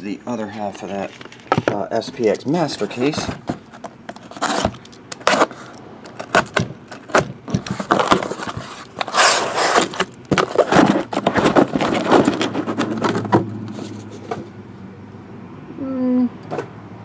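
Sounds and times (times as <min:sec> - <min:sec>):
cardboard scrapes and knocks: 0:02.8 - 0:05.6, 0:06.2 - 0:14.5
knife slitting cardboard tape: 0:06.2 - 0:13.3.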